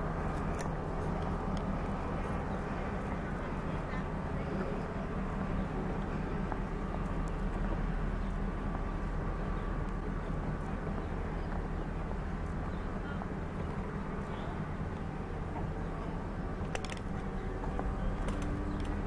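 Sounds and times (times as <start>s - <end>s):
train engine humming: 0.0s - 19.0s.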